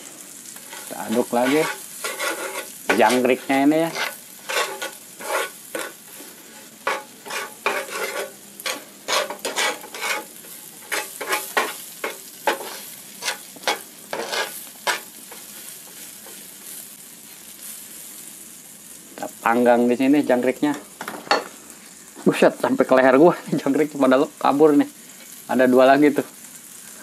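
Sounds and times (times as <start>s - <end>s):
food sizzling on a griddle: 0.0s - 27.0s
wooden spatula scraping pan: 0.6s - 16.4s.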